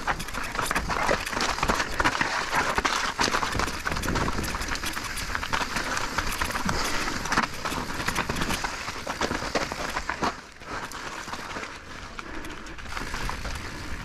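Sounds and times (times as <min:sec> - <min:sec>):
bike knocking and rattling: 0:00.0 - 0:14.0
tyres rolling on loose rock: 0:00.0 - 0:14.0
wind rumble on microphone: 0:03.4 - 0:05.6.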